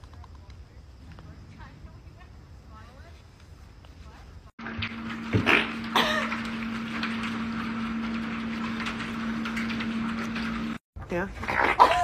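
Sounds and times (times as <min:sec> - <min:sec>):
constant low hum: 0:00.0 - 0:12.0.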